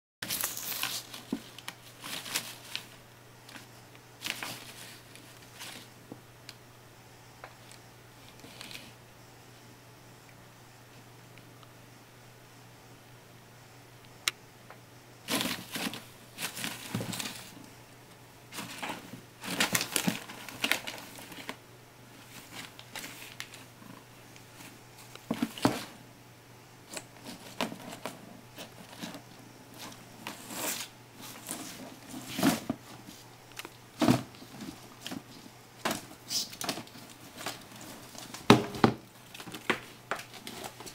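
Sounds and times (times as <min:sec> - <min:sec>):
paper rustling and crinkling: 0:00.2 - 0:05.9, 0:15.3 - 0:17.7, 0:18.5 - 0:21.6, 0:22.2 - 0:26.0, 0:27.2 - 0:40.9.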